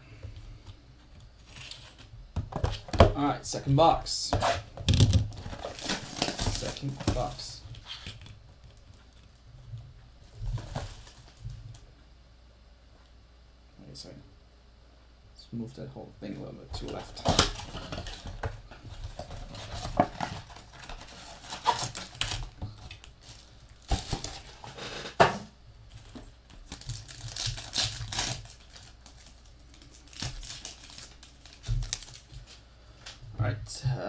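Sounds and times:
foil wrappers crinkling and tearing: 4.4s - 8.3s, 10.5s - 11.4s, 16.8s - 25.0s, 25.9s - 32.6s.

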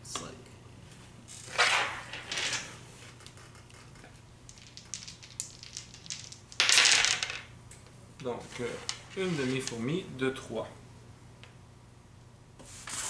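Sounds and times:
dice rolling onto a table: 1.5s - 7.5s, 8.7s - 9.7s
game pieces clicking: 4.1s - 7.5s.

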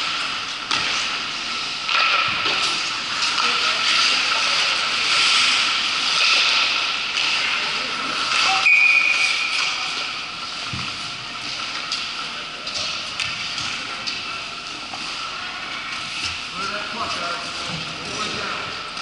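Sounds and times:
hockey sticks and puck clicking: 0.0s - 10.7s, 11.4s - 16.4s
skate blades scraping ice: 0.0s - 10.7s.

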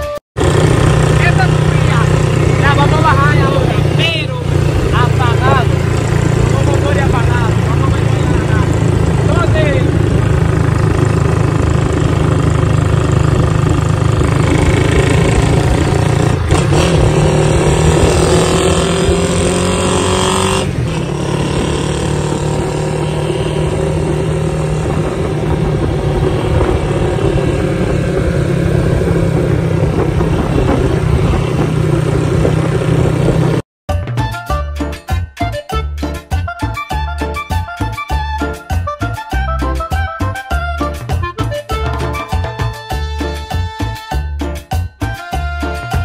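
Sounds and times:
motorcycle engine running: 0.4s - 33.6s
wind rumble: 0.4s - 33.6s.

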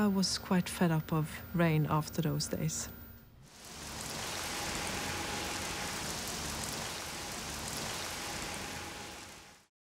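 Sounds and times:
rain spattering on surfaces: 3.4s - 9.7s.

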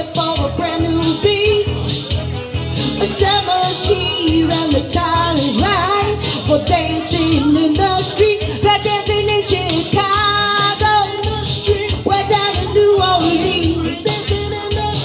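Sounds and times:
woman singing into microphone: 0.0s - 2.2s, 2.9s - 15.0s
electronic keyboard with steady beat: 0.0s - 15.0s.

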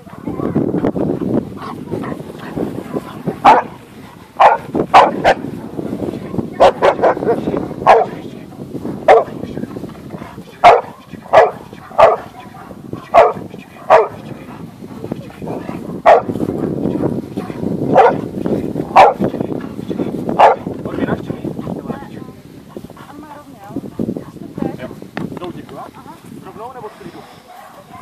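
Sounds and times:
dog barking: 1.6s - 3.8s, 4.4s - 5.5s, 6.2s - 8.2s, 9.0s - 9.4s, 10.6s - 14.3s, 15.9s - 16.3s, 17.4s - 18.3s, 18.9s - 19.3s, 20.4s - 20.7s, 26.8s - 28.0s.

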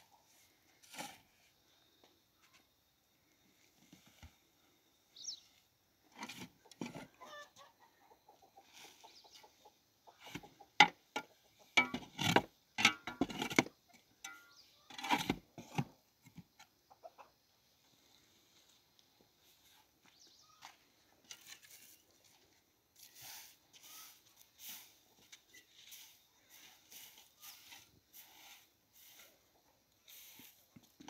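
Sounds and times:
chickens clucking: 6.4s - 11.8s, 16.6s - 17.8s.

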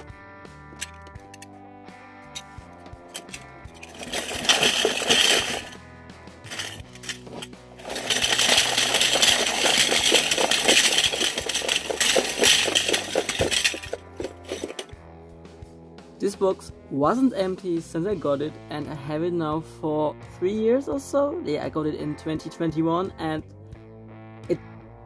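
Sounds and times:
metal buttons clattering onto wood floor: 3.2s - 5.8s, 6.5s - 14.9s.

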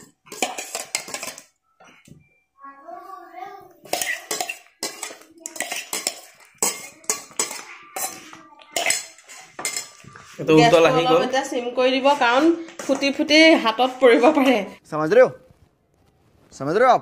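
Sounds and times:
metal spoon clinking on steel bowl: 0.0s - 1.6s, 3.9s - 10.1s.

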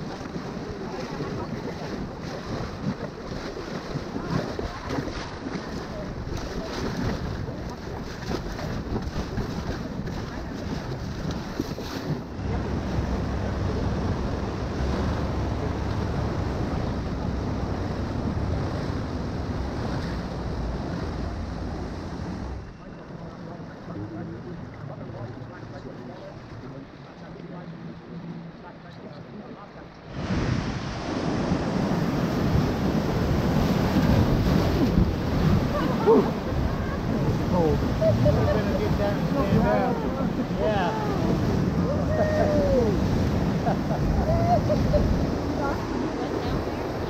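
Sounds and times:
wind noise on microphone: 0.0s - 22.6s, 30.1s - 47.0s
rushing river water: 0.0s - 47.0s
whitewater rushing: 30.1s - 47.0s.

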